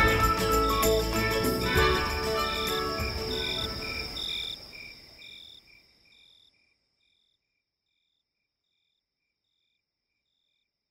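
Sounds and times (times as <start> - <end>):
background music: 0.0 - 4.2
thin steady high tone: 0.0 - 4.8
cricket chirps: 0.0 - 10.9.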